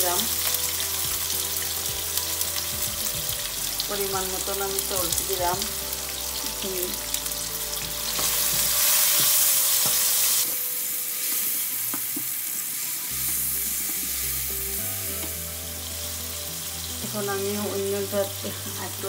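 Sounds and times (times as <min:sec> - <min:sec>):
onions sizzling in oil: 0:00.0 - 0:19.0.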